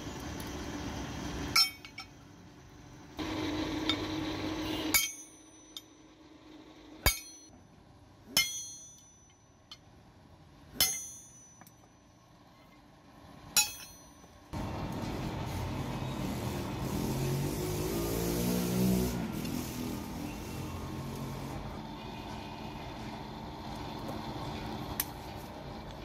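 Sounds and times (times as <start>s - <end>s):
hammer striking anvil: 1.5s - 2.2s, 4.9s - 6.0s, 7.0s - 7.5s, 8.3s - 9.8s, 10.8s - 12.0s, 13.6s - 14.3s.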